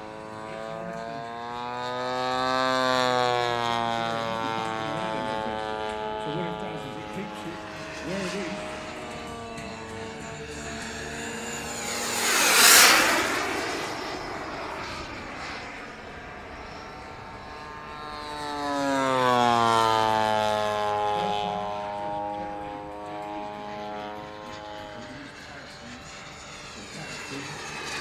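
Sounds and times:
model jet rushing past: 0:00.0 - 0:28.0
model plane engine droning past: 0:00.0 - 0:28.0.

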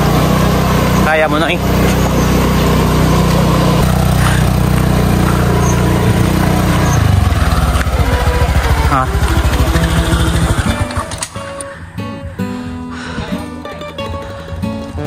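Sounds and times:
small engine running: 0:00.0 - 0:11.8.

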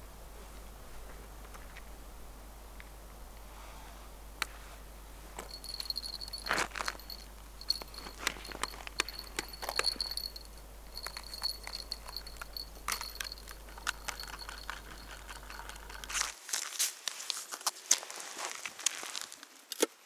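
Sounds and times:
footsteps crunching on snow: 0:05.4 - 0:09.0, 0:16.1 - 0:19.6.

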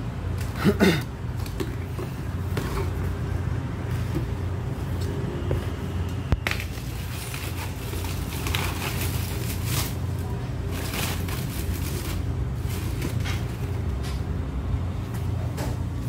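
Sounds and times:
steady low hum: 0:00.0 - 0:16.0
packing paper rustling: 0:06.4 - 0:13.8.

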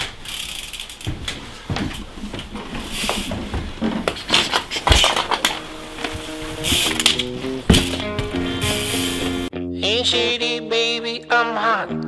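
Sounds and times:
bike knocking against bikes and boards: 0:00.9 - 0:08.9
heavy thump: 0:07.7 - 0:08.8.

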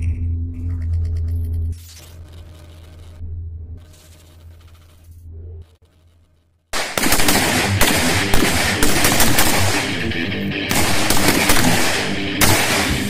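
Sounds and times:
rifle shots: 0:06.8 - 0:13.0
guitar background music: 0:07.4 - 0:13.0.

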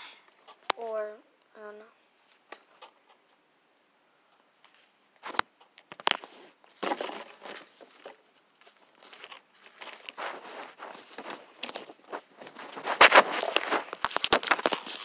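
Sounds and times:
fabric rustling against phone: 0:06.1 - 0:15.0.

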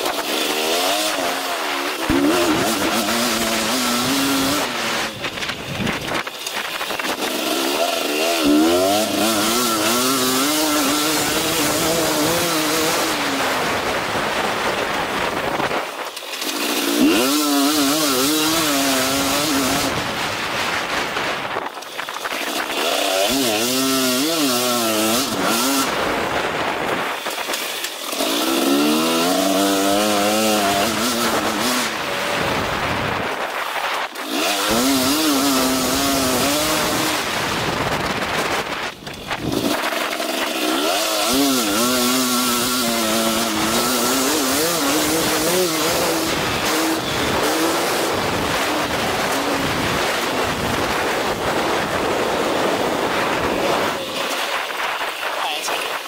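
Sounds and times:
motocross engine revving: 0:00.0 - 0:56.0.

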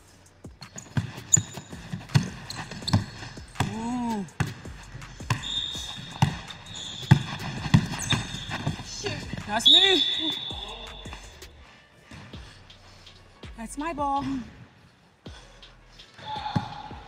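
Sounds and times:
high squeak: 0:00.6 - 0:03.4, 0:05.3 - 0:11.4
basketball bouncing on hardwood: 0:00.6 - 0:03.8, 0:04.4 - 0:09.6.

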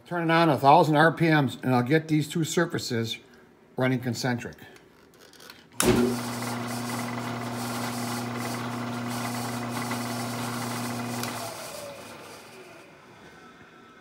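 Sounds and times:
milling machine spindle humming: 0:05.8 - 0:13.7.

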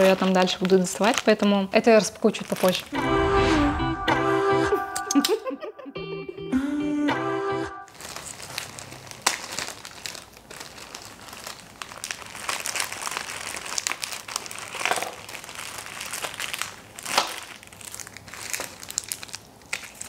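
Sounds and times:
plastic packaging crinkling: 0:00.0 - 0:03.0, 0:07.9 - 0:20.0
guitar music: 0:03.0 - 0:07.9.

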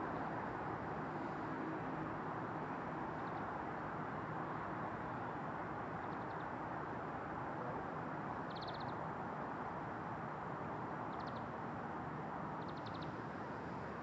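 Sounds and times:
outdoor background rush: 0:00.0 - 0:14.0
bird chirps: 0:08.5 - 0:08.9, 0:12.6 - 0:13.1.

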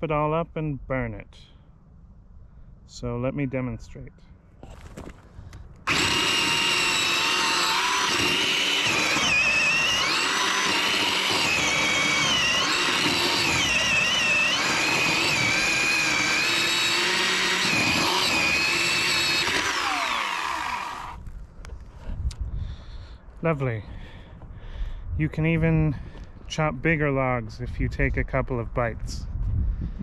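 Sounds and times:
electric chainsaw cutting log: 0:05.8 - 0:21.2.

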